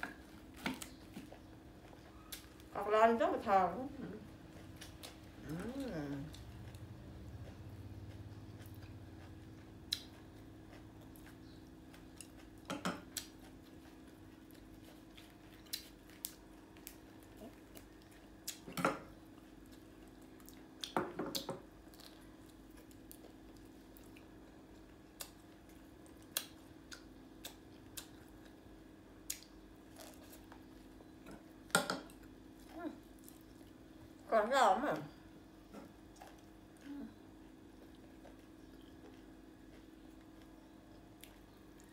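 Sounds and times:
soft chewing: 0.0s - 2.8s, 3.8s - 34.3s, 34.9s - 41.9s
steady low hum: 0.0s - 41.9s.

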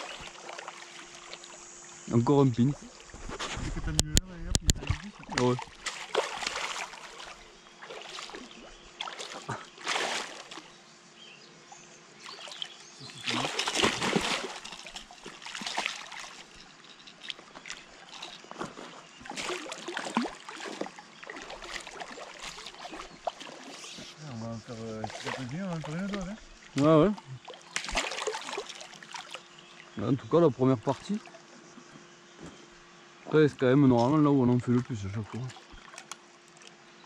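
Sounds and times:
fish thrashing and splashing: 0.0s - 1.7s, 4.7s - 10.7s, 12.3s - 24.2s, 25.0s - 29.6s.

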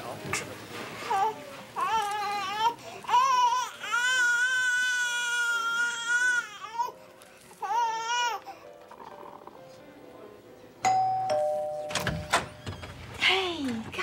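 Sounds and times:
infant crying: 1.1s - 7.0s, 7.6s - 8.6s.

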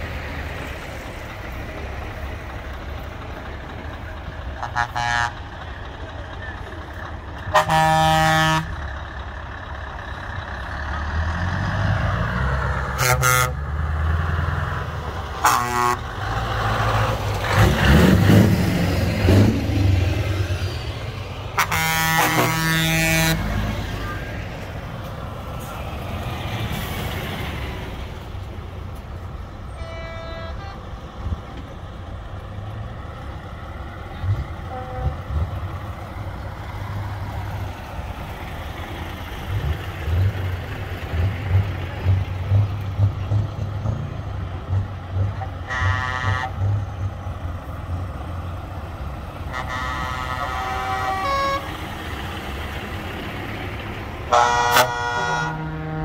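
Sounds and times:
heavy trucks driving past: 0.0s - 56.0s
air horn blasts: 4.6s - 5.4s, 7.5s - 8.8s, 13.0s - 13.6s, 15.4s - 16.1s, 21.6s - 23.5s, 29.7s - 30.8s, 34.7s - 35.2s, 45.6s - 46.7s, 49.5s - 51.7s, 54.3s - 56.0s.

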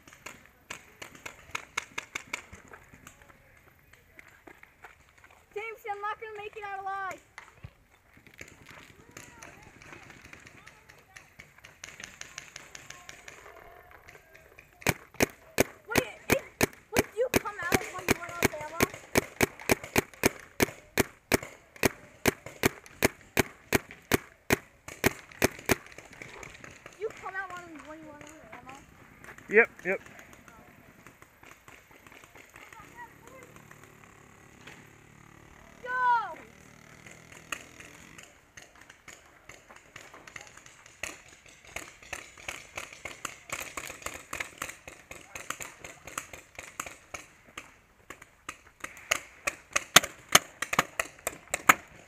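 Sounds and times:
paintball guns popping: 0.0s - 34.9s, 36.9s - 52.0s
paintball marker pops: 14.8s - 27.2s, 48.1s - 52.0s.

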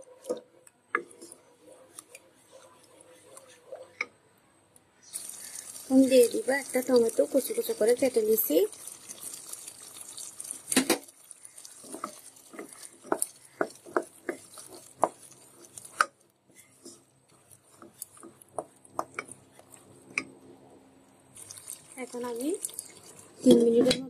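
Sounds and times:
spatula knocking and scraping pot: 0.0s - 4.2s, 5.4s - 20.4s
spatula stirring thick gravy: 0.0s - 4.4s, 5.0s - 24.0s.

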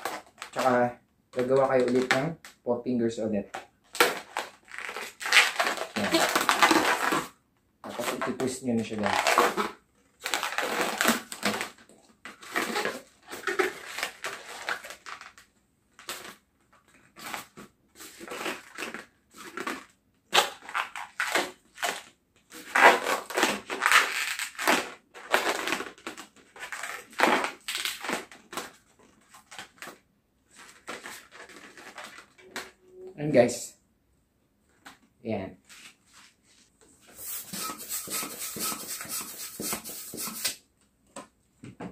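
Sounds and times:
balloons squeaking while twisted: 3.9s - 11.8s, 12.4s - 15.2s, 18.1s - 29.6s, 37.0s - 40.6s.

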